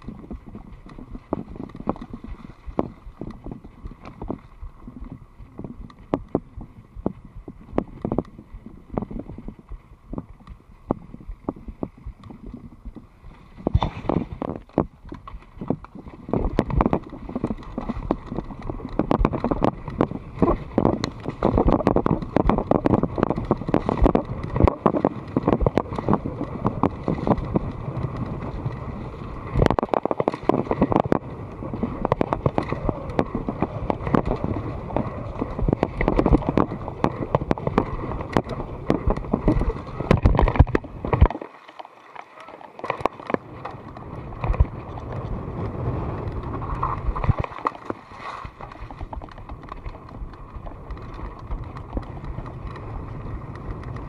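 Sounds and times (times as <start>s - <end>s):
bike tyres on rough trail: 0.0s - 54.0s
wind on microphone: 0.0s - 54.0s
bike frame and chain rattling: 15.0s - 29.6s, 30.2s - 41.1s, 48.6s - 54.0s.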